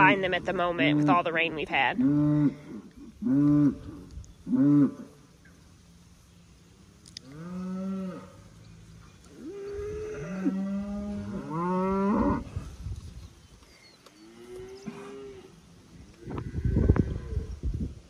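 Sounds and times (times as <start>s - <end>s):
cows mooing: 7.2s - 8.5s, 9.3s - 12.6s, 14.2s - 15.6s.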